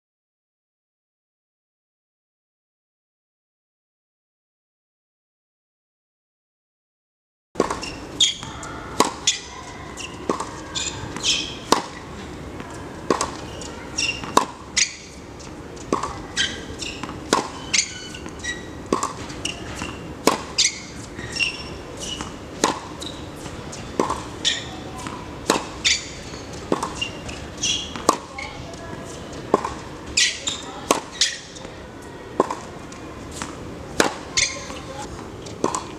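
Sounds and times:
racket hitting tennis ball: 7.6s - 31.8s, 32.4s - 35.9s
tennis ball bouncing on court: 7.6s - 31.8s, 32.4s - 35.9s.

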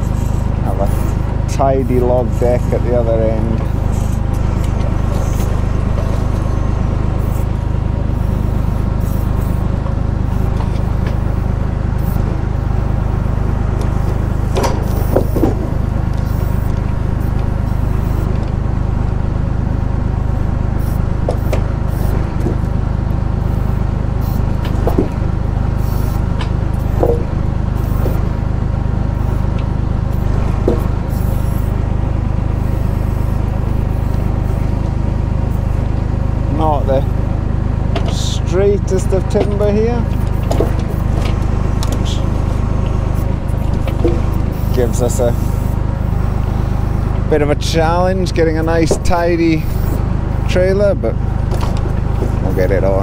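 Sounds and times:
tractor engine running: 0.0s - 53.0s
logs knocking together: 26.4s - 27.3s.

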